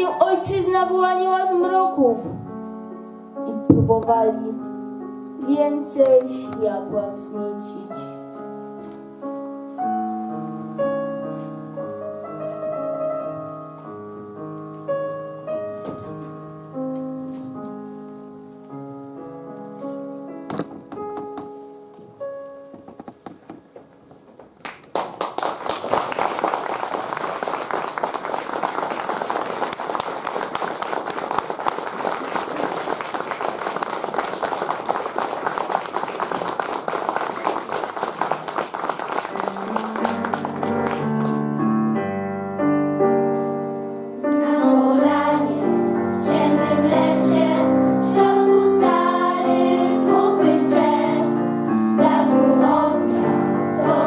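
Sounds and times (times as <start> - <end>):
piano music: 0.0 - 24.6, 26.1 - 54.0
audience applauding: 24.6 - 41.6.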